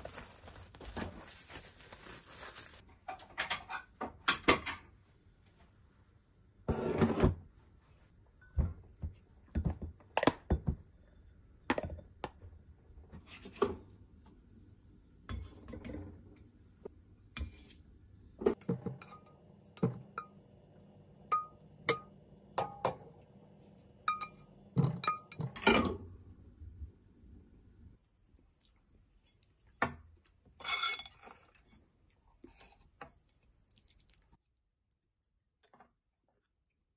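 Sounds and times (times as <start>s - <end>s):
food set on ceramic plates: 2.4s - 5.0s, 15.2s - 26.1s, 29.1s - 34.3s.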